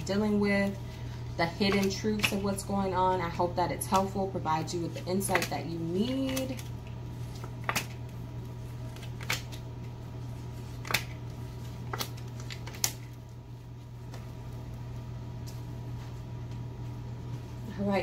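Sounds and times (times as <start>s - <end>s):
steady low hum: 0.0s - 18.0s
cards snapping on wooden table: 7.4s - 8.0s, 9.0s - 9.6s, 10.8s - 11.2s.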